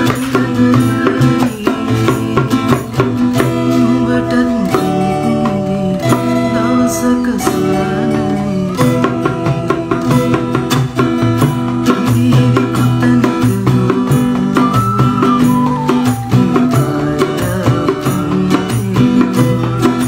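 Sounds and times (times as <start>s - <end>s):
dholak drum beat: 0.0s - 20.0s
man singing: 0.0s - 20.0s
strummed acoustic guitars: 0.0s - 20.0s
bamboo flute melody: 5.0s - 10.6s, 14.3s - 20.0s.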